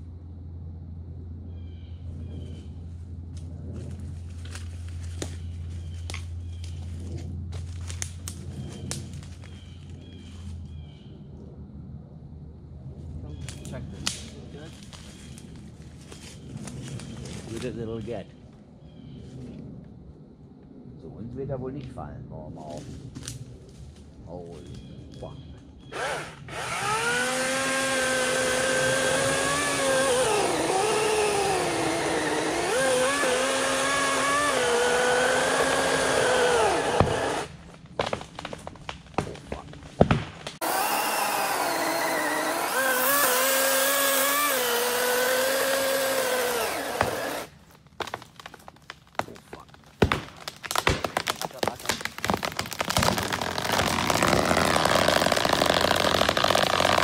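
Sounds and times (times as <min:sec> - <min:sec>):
electric chainsaw cutting wood: 0:25.9 - 0:37.5, 0:40.6 - 0:47.5, 0:52.5 - 0:57.0
wood cracking: 0:26.8 - 0:57.0.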